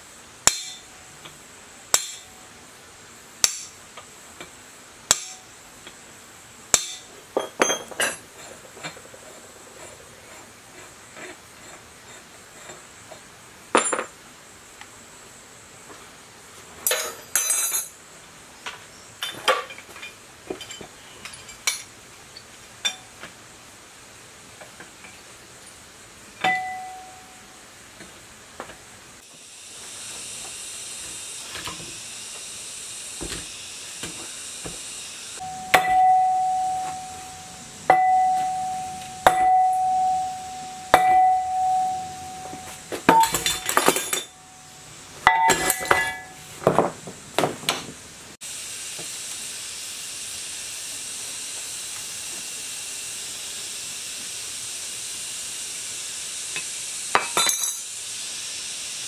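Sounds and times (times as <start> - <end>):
steady hiss: 0.0 - 59.0
metal pieces clinking and clattering: 7.4 - 9.3, 13.7 - 14.1, 16.8 - 18.0, 19.2 - 23.0, 42.2 - 44.4, 45.2 - 46.4, 57.2 - 57.9
metal part struck ringing: 26.4 - 27.4, 35.4 - 46.4.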